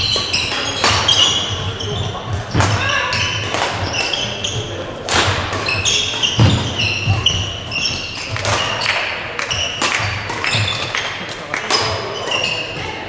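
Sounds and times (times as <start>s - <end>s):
racket striking shuttlecock: 0.0s - 1.7s, 2.3s - 11.1s
shoe squeaks on court floor: 0.0s - 4.8s, 5.6s - 11.0s, 11.7s - 12.9s.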